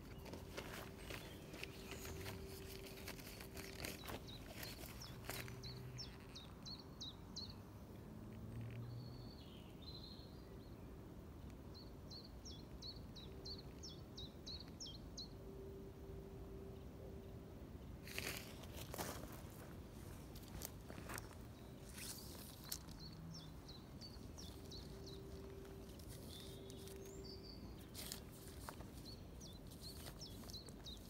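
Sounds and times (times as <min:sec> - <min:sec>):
handling clicks and rustles: 0:00.0 - 0:06.5
small songbird singing: 0:00.0 - 0:07.6, 0:20.2 - 0:31.0.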